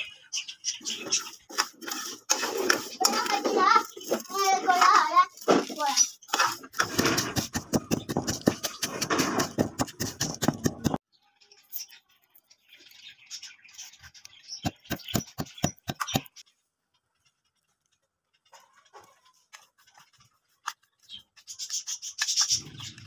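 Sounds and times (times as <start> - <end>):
spoon scraping ceramic plate: 1.2 - 4.3, 6.2 - 11.0
pestle grinding spices in mortar: 6.3 - 11.0
pestle knocks: 6.8 - 11.0.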